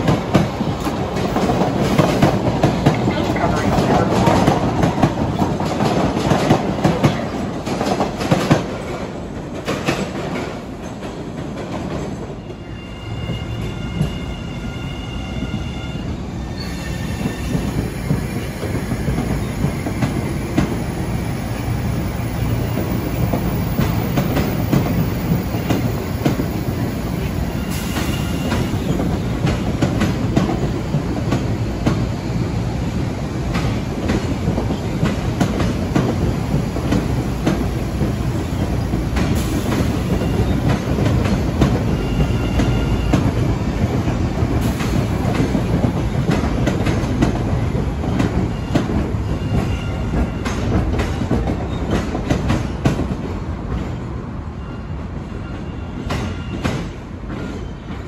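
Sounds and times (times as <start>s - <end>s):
train rumbling along track: 0.0s - 58.0s
train wheels squealing: 12.1s - 20.4s, 26.5s - 29.6s, 39.3s - 43.5s, 48.1s - 52.9s, 53.8s - 58.0s.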